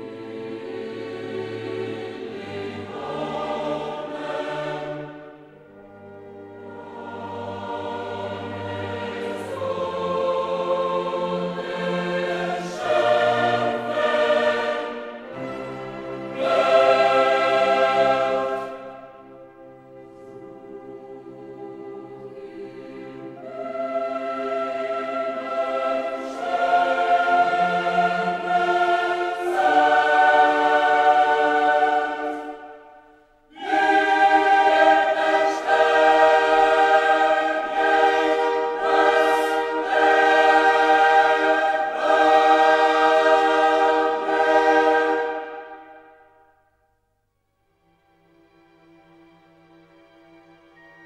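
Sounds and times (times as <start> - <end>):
choir singing held chords: 0.0 - 47.0.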